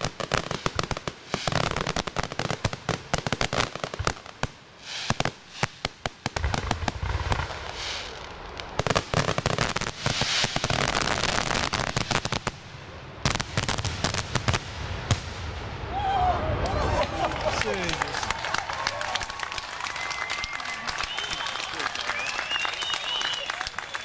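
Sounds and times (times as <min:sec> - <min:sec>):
firework bangs: 0:00.0 - 0:15.9.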